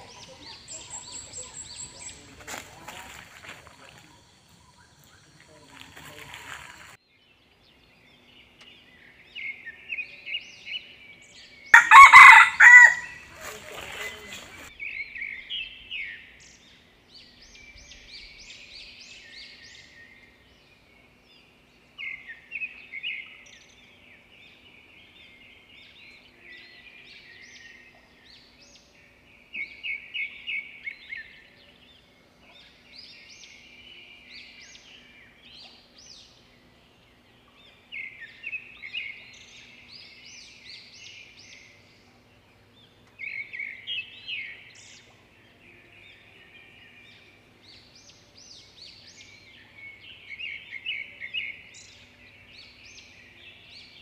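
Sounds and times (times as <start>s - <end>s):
high chirping calls: 0.0s - 7.0s
rooster crowing: 11.7s - 14.7s.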